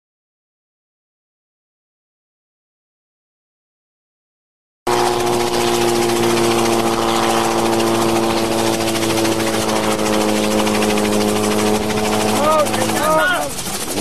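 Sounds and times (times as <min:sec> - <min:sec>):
helicopter engine and rotor drone: 0:04.9 - 0:14.0.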